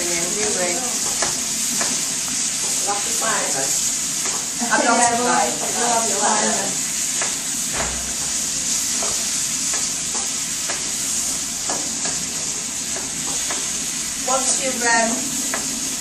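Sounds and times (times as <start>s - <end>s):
food sizzling in a frying pan: 0.0s - 16.0s.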